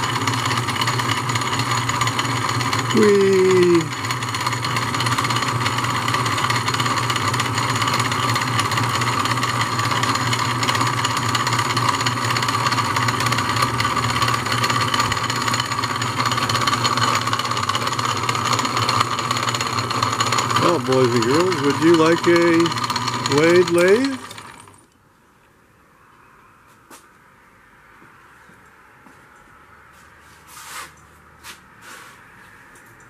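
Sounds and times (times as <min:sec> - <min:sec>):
lathe running: 0:00.0 - 0:25.0.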